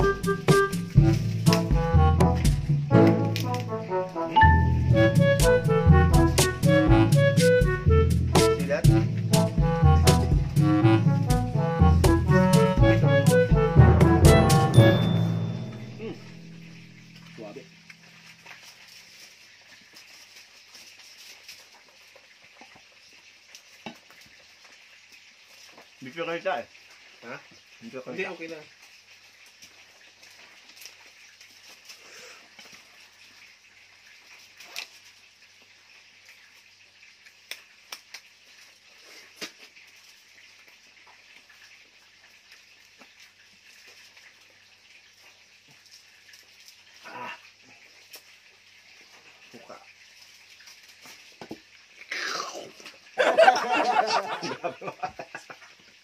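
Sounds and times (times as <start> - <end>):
faint steady hiss: 0.0 - 56.0
steady hiss: 15.3 - 21.9.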